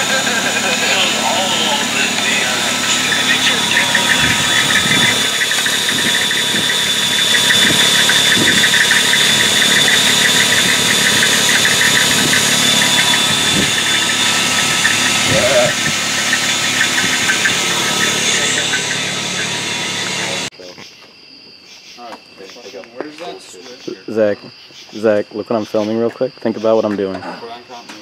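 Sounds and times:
electric drill boring metal: 0:00.0 - 0:20.5.

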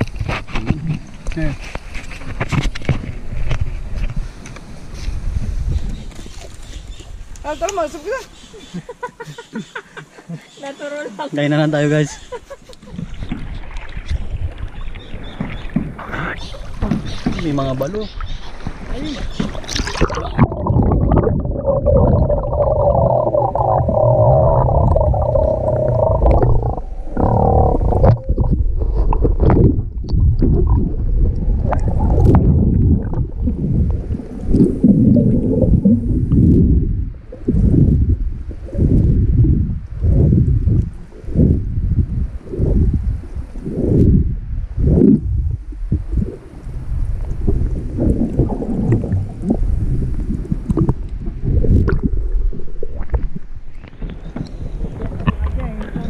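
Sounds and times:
water sloshing and bubbling underwater: 0:00.0 - 0:08.9, 0:11.7 - 0:56.0
small clicks and splashes: 0:18.9 - 0:20.5
steady hum: 0:20.0 - 0:42.9.

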